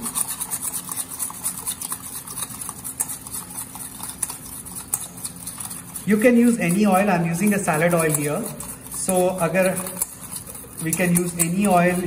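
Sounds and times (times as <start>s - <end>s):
whisk scraping metal bowl: 0.0s - 12.0s.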